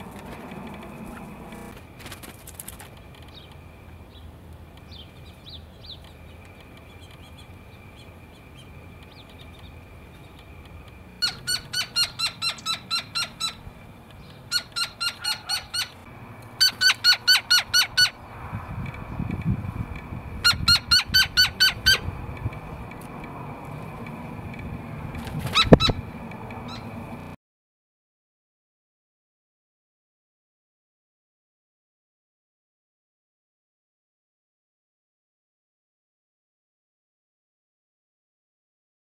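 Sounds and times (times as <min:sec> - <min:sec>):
small birds high chips: 0:01.0 - 0:18.2, 0:25.4 - 0:26.0
woodpecker yip calls: 0:11.2 - 0:18.2, 0:20.4 - 0:22.1, 0:25.5 - 0:27.0.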